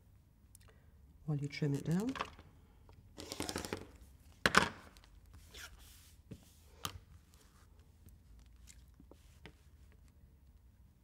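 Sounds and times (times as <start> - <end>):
fabric and ruler rustling: 5.0 - 10.1.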